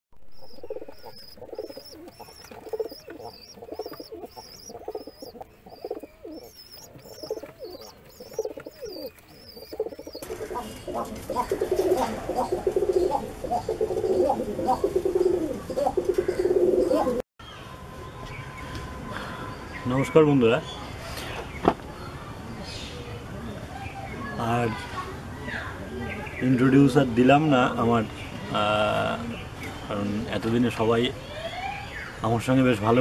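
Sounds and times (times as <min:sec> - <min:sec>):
high chirp: 0:00.2 - 0:10.9
pigeons cooing: 0:00.2 - 0:17.2.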